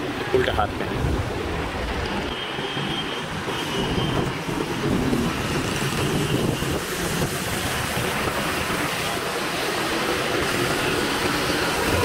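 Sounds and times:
wind rushing over microphone: 0.0 - 2.3, 3.2 - 12.0
road and tyre noise: 0.0 - 12.0.

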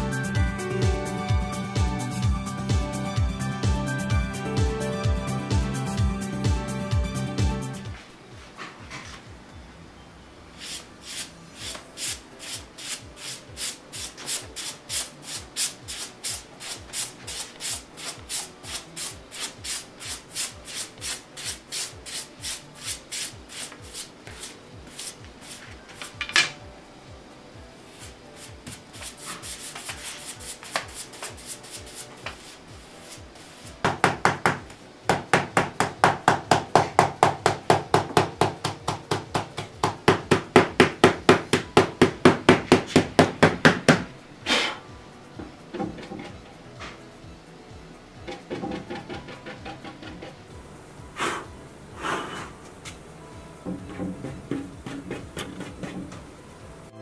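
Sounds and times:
brush sweeping over tissue paper: 10.6 - 25.8, 27.9 - 33.8.

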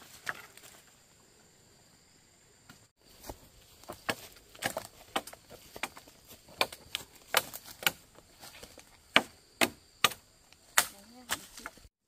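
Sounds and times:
wood chopping strikes: 2.7 - 11.8.

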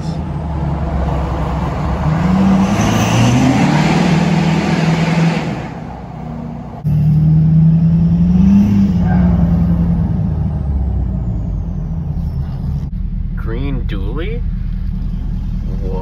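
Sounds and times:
road noise: 0.0 - 16.0
truck engine from inside cab: 0.0 - 16.0.

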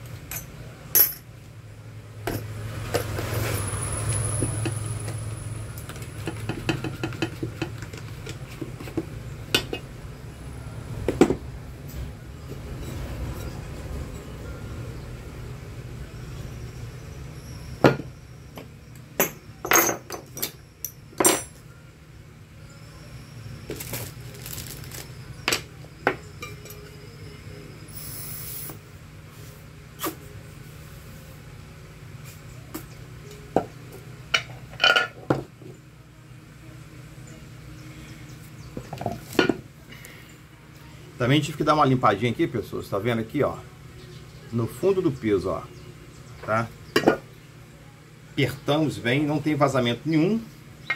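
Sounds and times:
metal tools clinking on workbench: 0.3 - 1.3, 19.2 - 21.7.

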